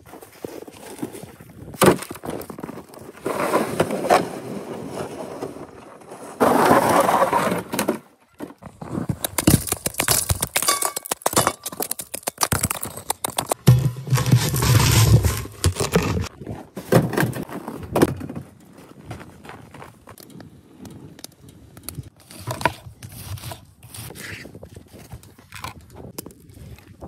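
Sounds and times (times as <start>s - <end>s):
ice chunks knocking and scraping: 8.6s - 18.4s
ice pieces clinking and cracking: 9.3s - 16.3s.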